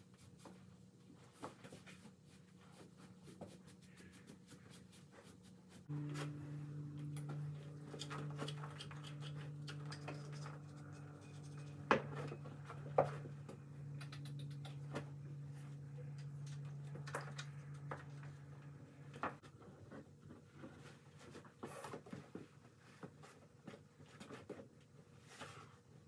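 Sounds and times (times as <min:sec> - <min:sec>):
brush scraping a horse: 0:00.0 - 0:13.6
low electric hum: 0:00.0 - 0:26.0.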